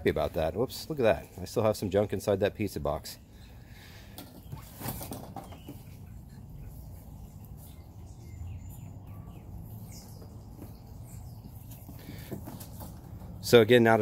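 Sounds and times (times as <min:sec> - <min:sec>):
brief rustles: 0:04.1 - 0:06.1
faint bird chirps: 0:04.4 - 0:12.3.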